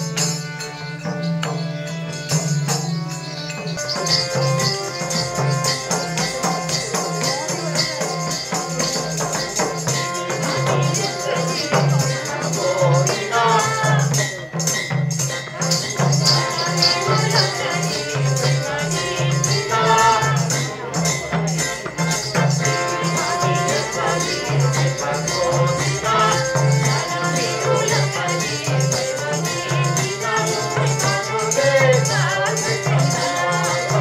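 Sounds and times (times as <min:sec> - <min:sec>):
folk dance music: 0:00.0 - 0:34.0
person singing: 0:09.9 - 0:14.6.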